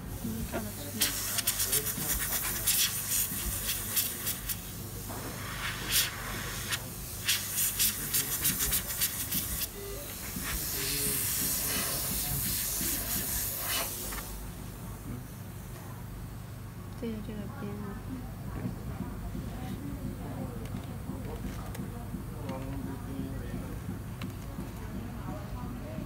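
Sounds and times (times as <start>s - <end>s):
compressed air blow gun hissing: 0.8s - 14.4s.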